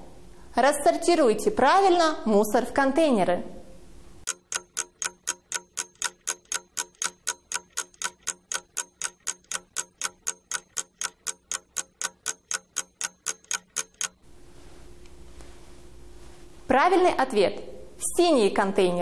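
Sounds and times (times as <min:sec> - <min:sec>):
clock ticking: 0:04.2 - 0:14.2.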